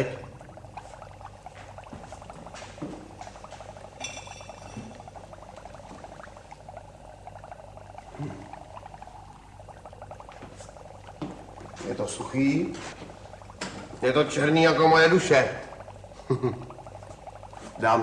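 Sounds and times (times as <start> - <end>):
liquid bubbling in glassware: 0.0 - 18.0
high ringing sound: 4.0 - 4.9.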